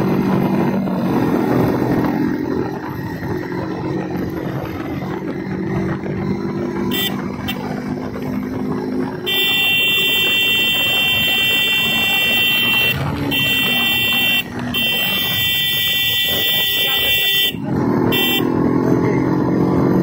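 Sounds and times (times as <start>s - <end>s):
motorcycle engine running: 0.0s - 20.0s
horn toots: 6.8s - 7.8s, 9.2s - 18.6s
loud steady horn: 6.8s - 7.8s, 9.1s - 18.7s.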